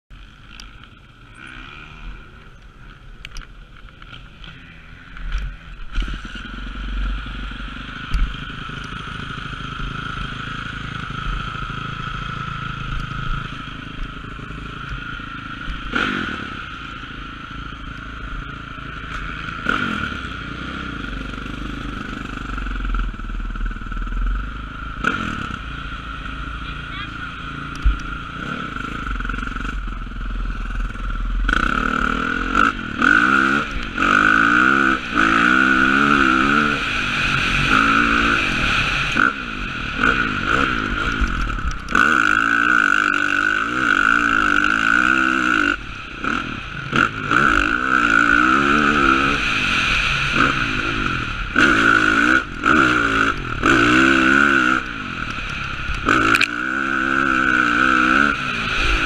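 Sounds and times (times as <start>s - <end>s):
dirt bike engine revving: 0.1s - 3.1s, 3.9s - 59.0s.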